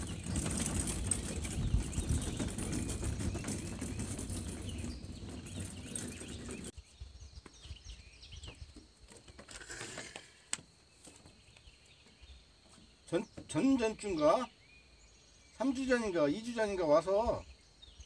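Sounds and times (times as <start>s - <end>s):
cart wheels rolling on wooden boards: 0.0s - 6.8s
birds chirping: 0.0s - 10.2s, 10.8s - 18.0s.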